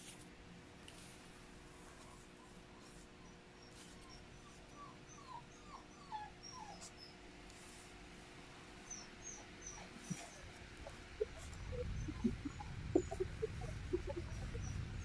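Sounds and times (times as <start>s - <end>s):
low steady hum: 0.0s - 15.0s
high chirps: 11.2s - 15.0s.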